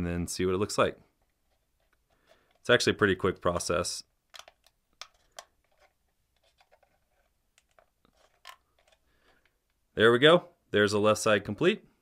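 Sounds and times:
plastic parts clicking into place: 4.3s - 6.9s, 7.5s - 9.8s.

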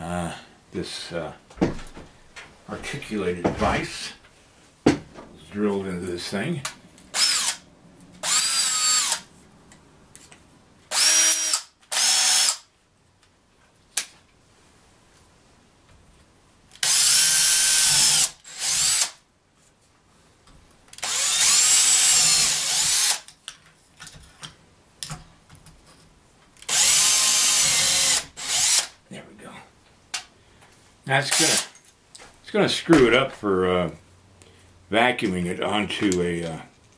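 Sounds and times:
cordless drill whining: 7.1s - 7.6s, 8.2s - 9.3s, 10.9s - 12.6s, 16.8s - 19.2s, 21.0s - 23.3s, 26.7s - 28.9s.

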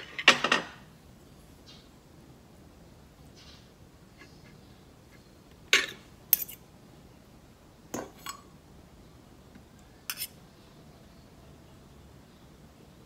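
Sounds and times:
cutlery clinking against dishes: 5.7s - 6.6s, 10.1s - 10.4s.

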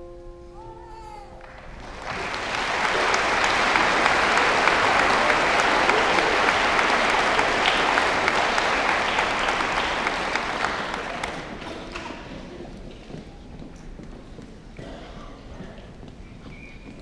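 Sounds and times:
audience applauding: 1.4s - 12.8s.

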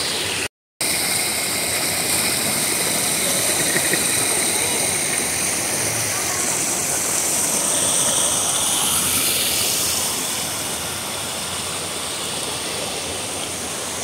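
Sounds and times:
waterfall rushing water: 0.0s - 14.0s.

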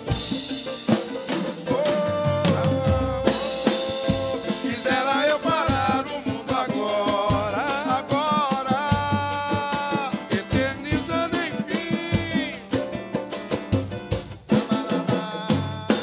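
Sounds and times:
drum kit and percussion: 0.0s - 16.0s
samba banjo strummed: 0.0s - 16.0s
man singing long notes: 1.6s - 12.9s, 14.5s - 16.0s.

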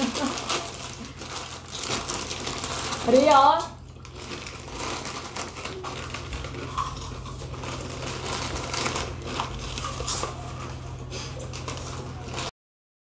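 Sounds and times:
foil chip packets crinkling: 0.0s - 12.5s
chips being crunched: 4.0s - 10.6s.

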